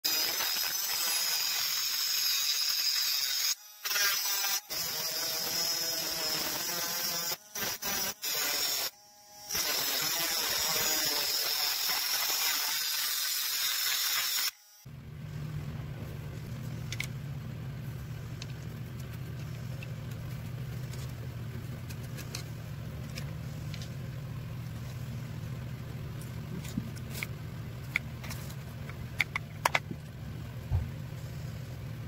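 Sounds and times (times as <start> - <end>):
grinder disc grinding metal rod: 0.1 - 14.6.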